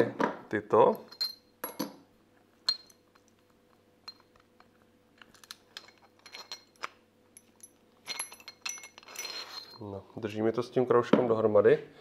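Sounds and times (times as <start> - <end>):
steel rings clinking: 0.9 - 1.9, 2.6 - 3.3, 4.0 - 10.0.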